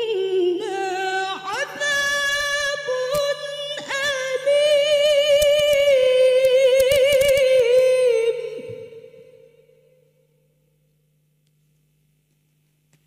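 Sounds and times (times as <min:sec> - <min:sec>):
woman reciting melodically: 0:00.0 - 0:09.8.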